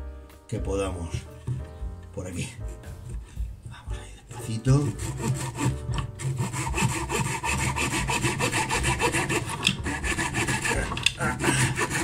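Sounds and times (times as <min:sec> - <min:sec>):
hand saw cutting branch: 0:04.3 - 0:12.0.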